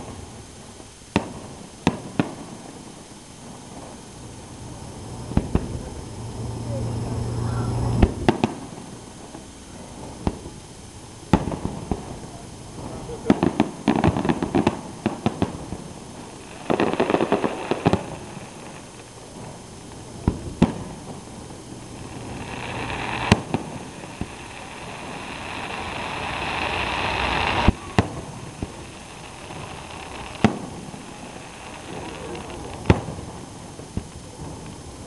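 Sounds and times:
fireworks bangs: 0.0s - 35.0s
fireworks crackling: 0.0s - 35.0s
rushing noise: 21.0s - 34.0s.

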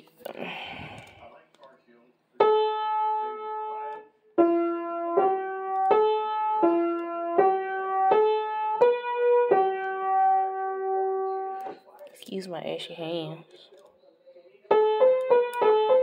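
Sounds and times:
piano single-note melody: 2.4s - 11.8s, 14.7s - 16.0s.

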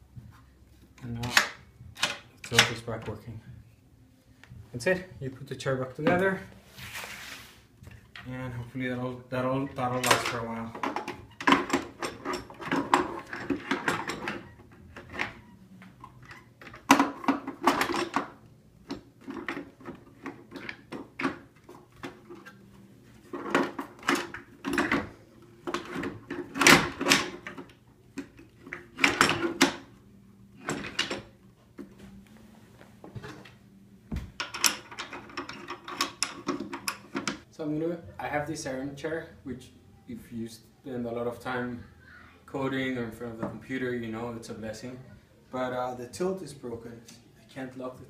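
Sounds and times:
plastic chair parts clunking: 9.9s - 30.0s, 33.1s - 37.5s.

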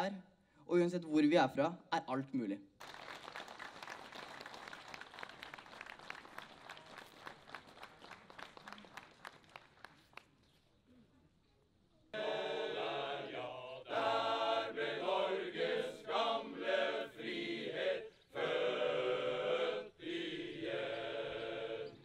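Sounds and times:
male voice choir singing: 12.2s - 22.0s.

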